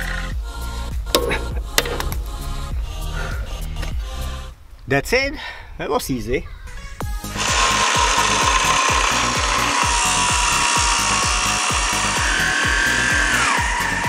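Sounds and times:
music bass beat thumping: 0.3 - 4.2
angle grinder cutting metal: 7.2 - 14.0.

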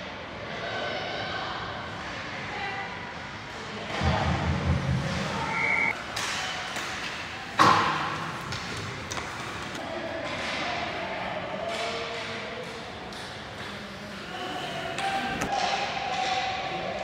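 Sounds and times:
hockey sticks and puck clacking: 5.9 - 11.0, 11.6 - 14.2, 15.0 - 17.0.

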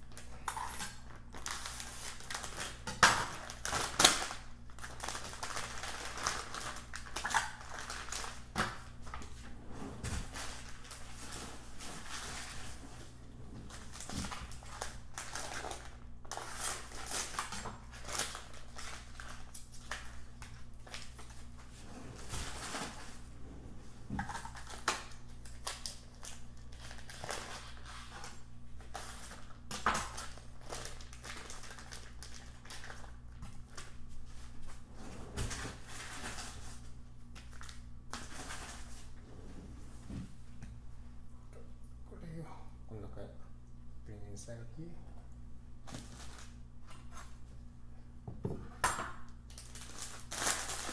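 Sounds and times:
plastic packaging crinkling: 0.0 - 9.4, 13.7 - 23.2, 24.2 - 34.8, 45.8 - 47.3, 49.5 - 50.9.

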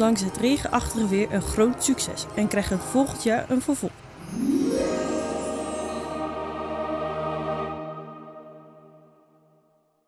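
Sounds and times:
upward sweeping tone: 4.2 - 6.9
layered held chords: 4.2 - 9.2.

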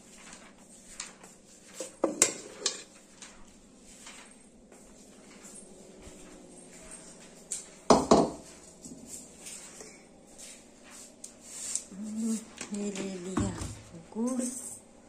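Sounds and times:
metal kitchen utensils clattering: 2.1 - 2.9.

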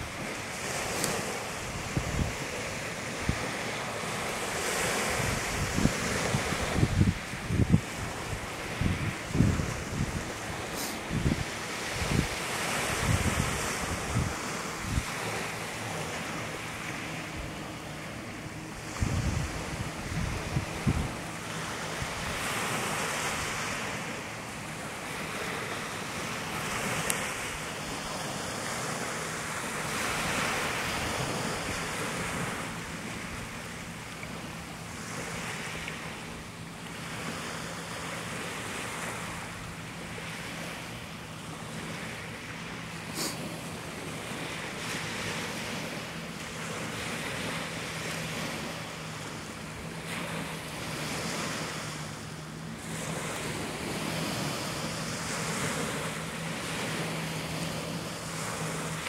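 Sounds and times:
wind buffeting microphone: 0.0 - 34.4
waves washing on gravel beach: 0.0 - 39.6, 40.2 - 59.0.

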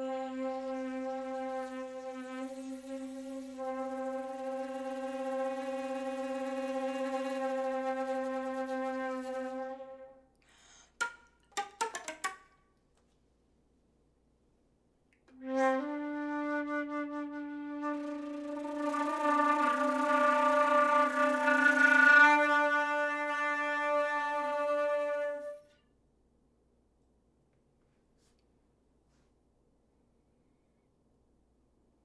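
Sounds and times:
flute low note: 0.0 - 10.2, 15.3 - 25.7.

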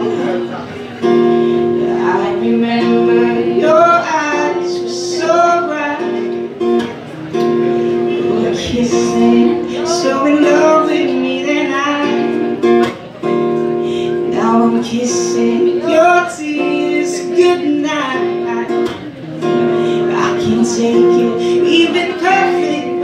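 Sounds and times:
strummed acoustic guitar: 0.0 - 23.0
man singing: 1.6 - 6.6, 7.9 - 12.6, 14.0 - 23.0.

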